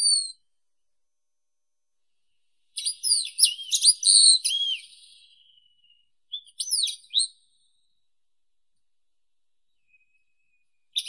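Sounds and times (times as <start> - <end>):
bird calling with thin whistles: 0.0 - 0.5, 2.7 - 7.9, 9.7 - 11.0.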